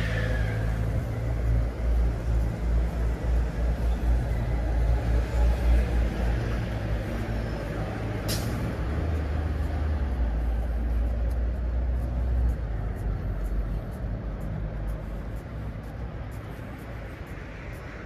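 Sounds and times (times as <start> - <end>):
air brakes hissing: 0.0 - 1.4, 8.1 - 9.1
heavy vehicle engine rumbling: 0.0 - 18.0.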